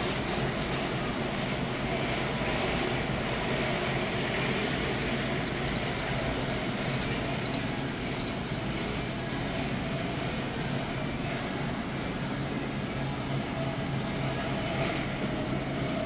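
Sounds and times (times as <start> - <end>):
model train rumbling on track: 0.0 - 16.0.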